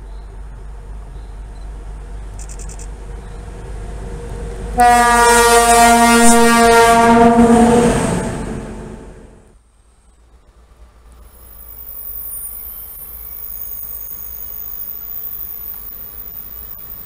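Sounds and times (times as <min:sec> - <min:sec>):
diesel locomotive engine: 0:00.0 - 0:17.0
locomotive horn: 0:04.2 - 0:09.5.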